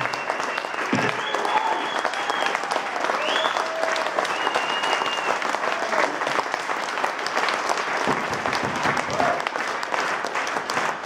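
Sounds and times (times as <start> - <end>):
high held whistles: 0.0 - 3.6, 4.3 - 5.4
audience applauding: 0.0 - 11.0.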